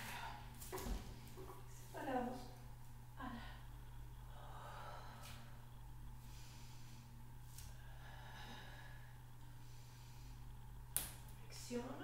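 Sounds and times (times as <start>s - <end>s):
steady low hum: 0.0s - 12.0s
woman breathing softly: 3.2s - 10.8s.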